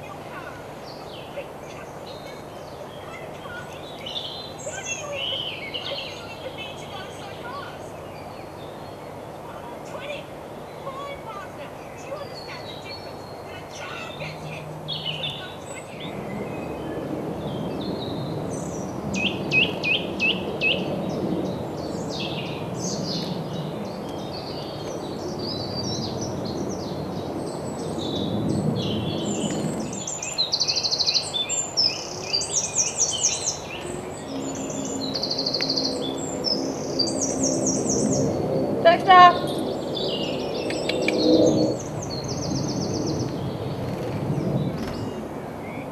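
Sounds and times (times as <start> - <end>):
birds singing and calling: 0.0 - 45.9.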